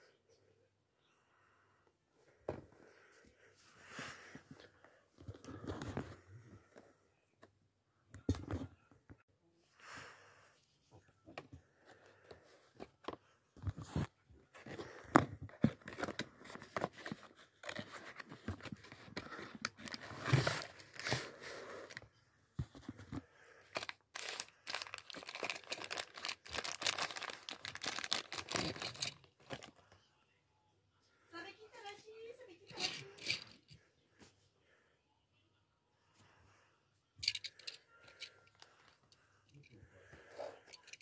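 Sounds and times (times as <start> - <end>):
cardboard box crinkling and tearing: 23.8 - 29.7.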